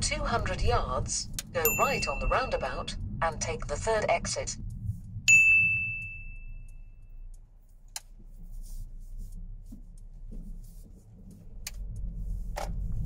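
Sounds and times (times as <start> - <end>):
car engine and road noise: 0.0 - 13.0
chime ringing: 1.6 - 2.9, 5.3 - 7.0.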